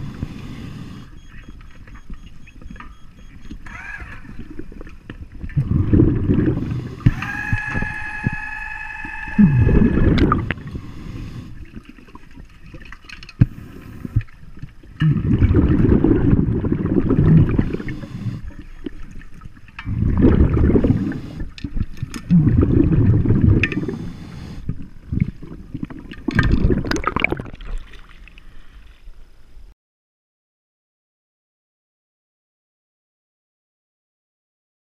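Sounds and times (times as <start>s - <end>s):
diver exhaling bubbles underwater: 4.2s - 12.2s, 15.0s - 18.9s, 19.8s - 28.1s.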